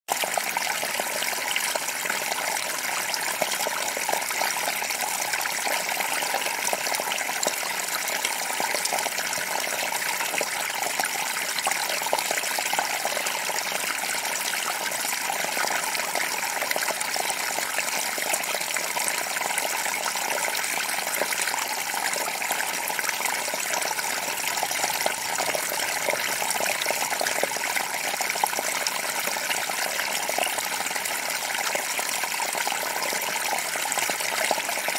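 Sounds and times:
creek babbling over rocks: 0.1s - 34.9s.

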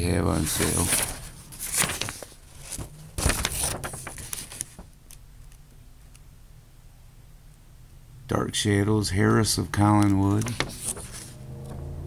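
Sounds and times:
faint steady hum: 0.0s - 12.0s
paper rustling and scraping: 0.3s - 5.0s, 10.0s - 11.4s.

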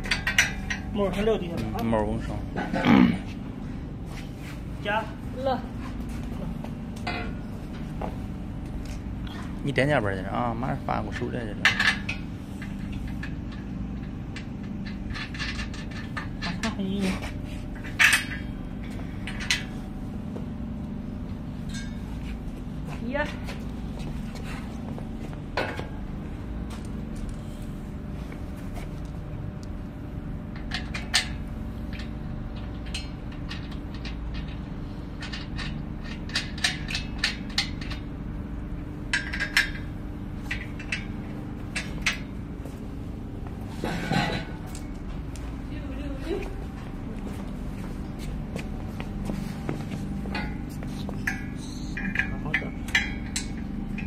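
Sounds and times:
steel parts clinking and clanking: 0.0s - 2.9s, 6.9s - 7.9s, 10.9s - 20.0s, 21.6s - 22.2s, 30.5s - 38.2s, 39.0s - 42.6s, 43.8s - 45.0s, 50.2s - 54.0s
steady low hum: 0.0s - 54.0s.

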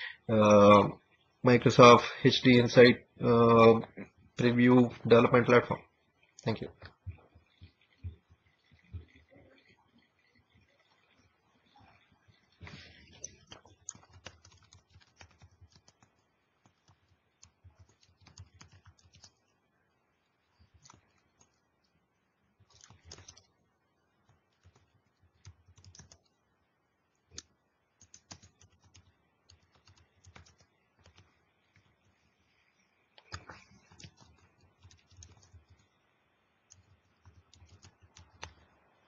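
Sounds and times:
keyboard typing: 12.3s - 19.5s, 20.5s - 21.7s, 22.6s - 23.6s, 24.2s - 26.4s, 27.3s - 32.2s, 33.1s - 36.0s, 36.6s - 38.8s.

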